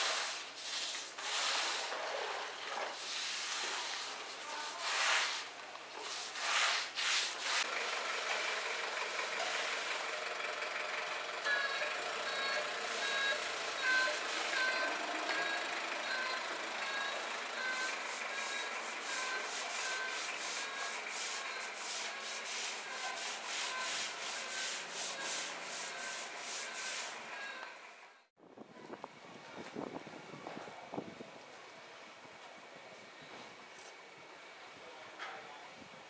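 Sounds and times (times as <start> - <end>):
brush scrubbing pebble floor: 0.0 - 7.7, 17.9 - 27.2
truck reversing beeper: 8.0 - 29.0.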